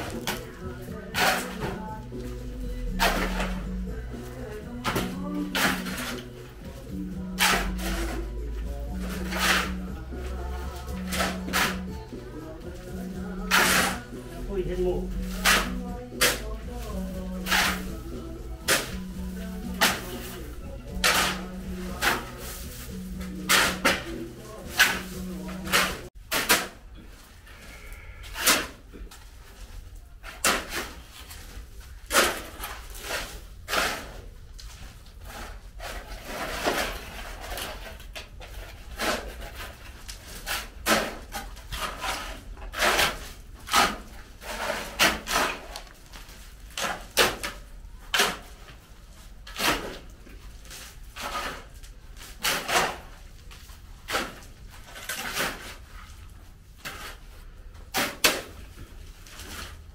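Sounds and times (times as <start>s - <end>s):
shovels scraping sand and gravel: 0.0s - 1.8s, 3.0s - 3.6s, 5.0s - 6.4s, 7.4s - 8.3s, 9.0s - 11.9s, 13.3s - 14.5s, 15.1s - 26.8s, 32.1s - 34.3s, 35.2s - 46.0s, 50.9s - 53.2s.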